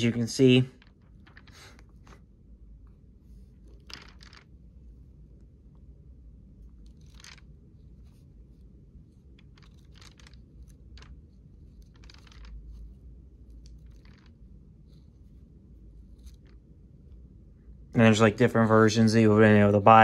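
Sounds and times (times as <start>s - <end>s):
low steady hum: 0.0s - 20.0s
book pages flipping: 3.3s - 4.5s, 6.8s - 13.0s, 13.6s - 14.3s.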